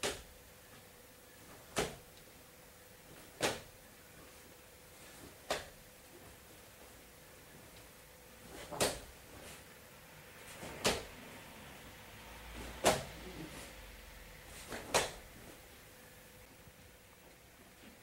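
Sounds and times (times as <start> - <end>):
kicks slapping on a leg: 0.0 - 0.3, 1.5 - 2.1, 3.2 - 3.7, 5.2 - 5.8, 8.5 - 9.2, 10.6 - 11.2, 12.6 - 13.7, 14.6 - 15.3.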